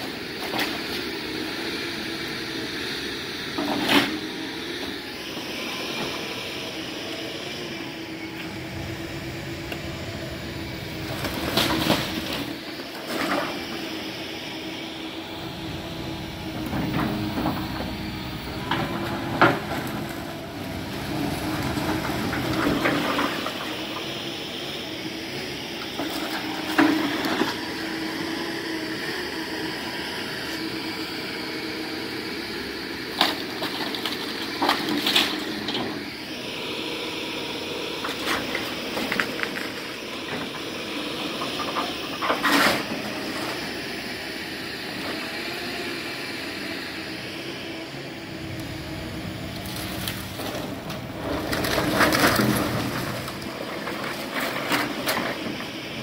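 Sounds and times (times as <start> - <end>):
diesel machinery running: 0.0 - 56.0
debris cracking and crunching: 49.6 - 55.4.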